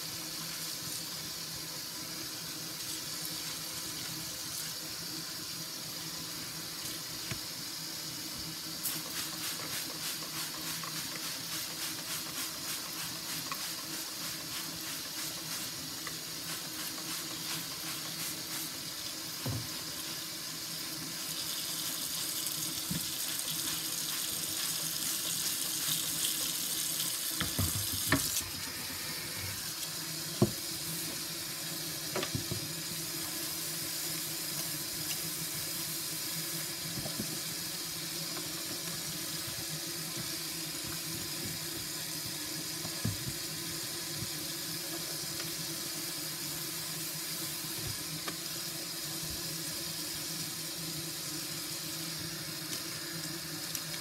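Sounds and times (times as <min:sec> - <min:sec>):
faucet running into sink: 0:00.0 - 0:33.3.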